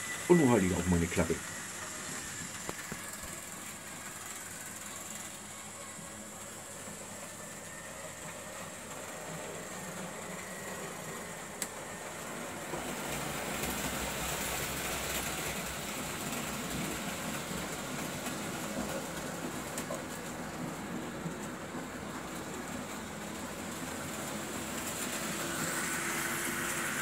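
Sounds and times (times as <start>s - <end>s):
model train motor and wheels: 0.0s - 27.0s.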